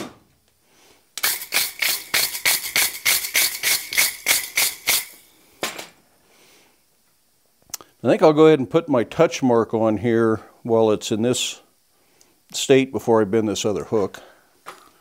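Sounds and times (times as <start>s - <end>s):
wire brush scrubbing hot iron: 1.2s - 5.2s.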